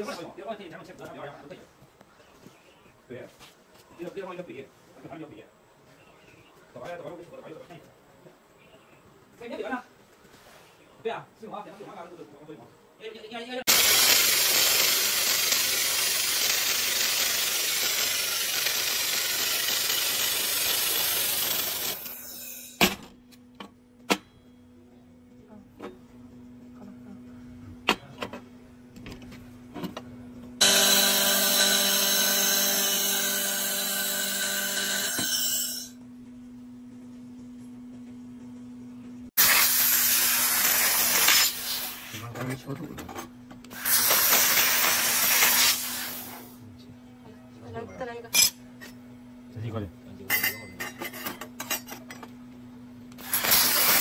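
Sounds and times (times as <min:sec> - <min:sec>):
laser welder hissing: 0:13.7 - 0:22.7, 0:39.4 - 0:42.2, 0:43.7 - 0:46.6, 0:53.2 - 0:54.0.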